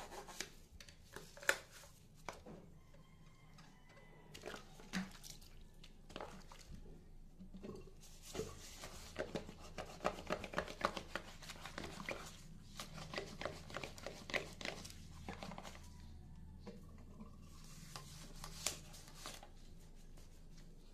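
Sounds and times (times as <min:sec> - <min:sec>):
sponge scrubbing ceramic basin: 0:04.3 - 0:16.0.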